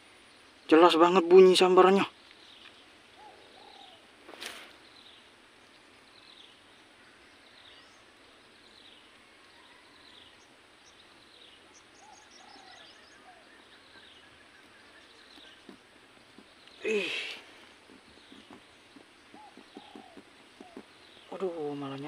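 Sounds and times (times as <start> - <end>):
rapid high ticks: 14.6 - 22.0.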